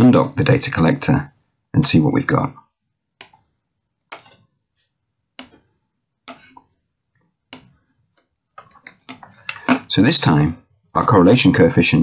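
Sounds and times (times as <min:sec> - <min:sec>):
computer mouse clicking: 0:03.2 - 0:03.5, 0:04.1 - 0:04.4, 0:05.4 - 0:06.7, 0:07.5 - 0:09.8.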